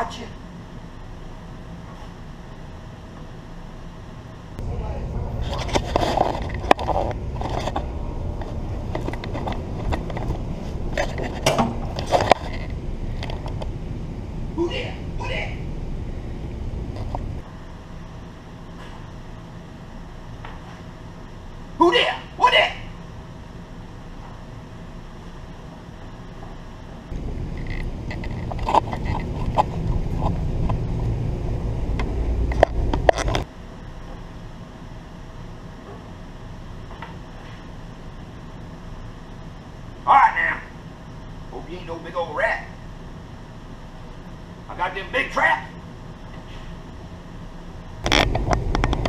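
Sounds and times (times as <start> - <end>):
camera handling rumble: 5.4 - 13.8, 27.2 - 31.2, 31.9 - 33.5, 48.0 - 49.0.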